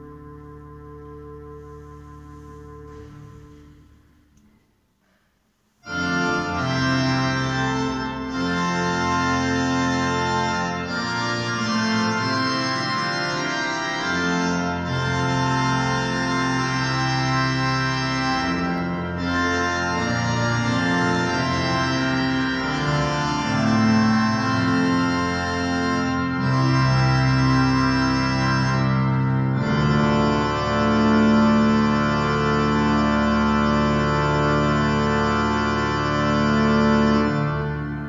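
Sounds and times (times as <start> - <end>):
church organ chords: 0.0 - 4.5, 5.8 - 38.0.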